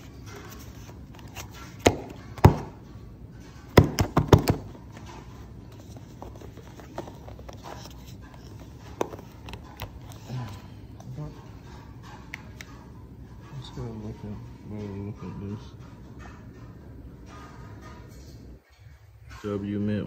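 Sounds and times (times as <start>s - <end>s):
box handling knocks and taps: 1.8s - 2.7s, 3.7s - 4.8s.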